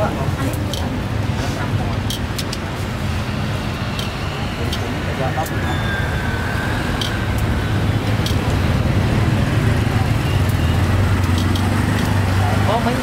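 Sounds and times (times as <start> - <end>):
sharp clicks: 8.1 - 8.5, 10.4 - 12.2.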